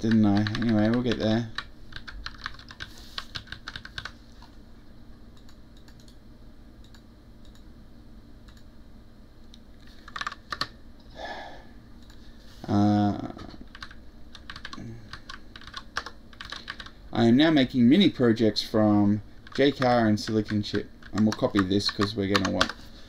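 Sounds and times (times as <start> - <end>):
keyboard typing: 0.0 - 4.6, 10.0 - 10.7, 13.7 - 17.0, 19.4 - 22.8.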